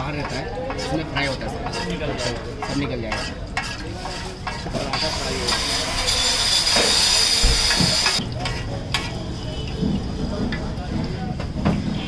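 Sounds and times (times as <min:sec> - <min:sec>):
flatbread sizzling in hot oil: 0:03.2 - 0:10.2.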